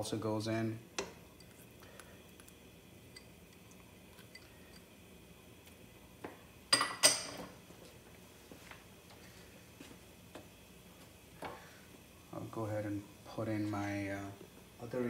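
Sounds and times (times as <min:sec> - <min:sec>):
kitchenware clinking: 0:06.7 - 0:07.6.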